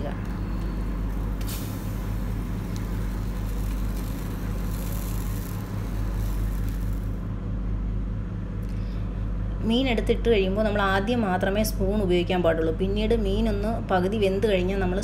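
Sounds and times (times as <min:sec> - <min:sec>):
low pulsing machine hum: 0:00.0 - 0:15.0
hiss: 0:01.4 - 0:07.2.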